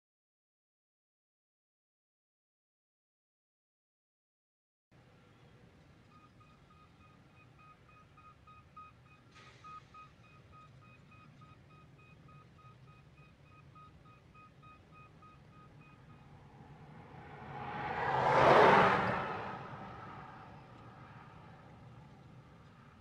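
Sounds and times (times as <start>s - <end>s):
distant reversing alarm beeping: 6.1s - 17.2s
vehicle passing close by: 15.5s - 23.0s.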